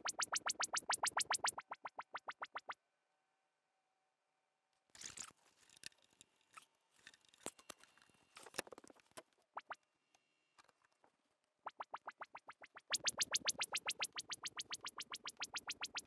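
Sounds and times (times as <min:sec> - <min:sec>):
rising chirps of test sweeps: 0:00.0 - 0:02.8, 0:11.7 - 0:16.0.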